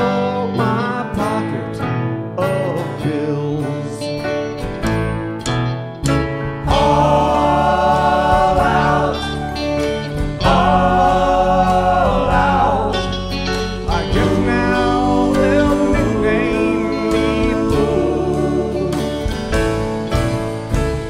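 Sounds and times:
acoustic and electric guitars: 0.0s - 21.0s
bass guitar: 0.0s - 21.0s
keyboard: 0.0s - 21.0s
drums: 4.5s - 21.0s.

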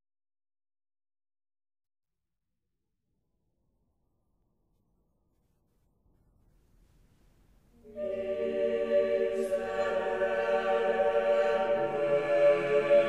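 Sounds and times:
choir singing long notes: 7.8s - 13.0s.

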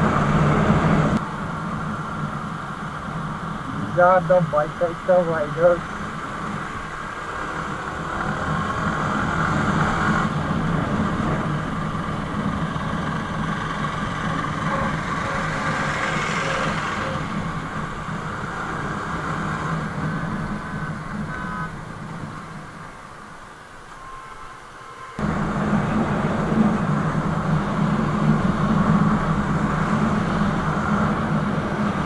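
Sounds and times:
rush of noise: 0.0s - 32.0s
surrounding traffic: 0.0s - 32.0s
motorcycle engine running: 7.5s - 22.5s.

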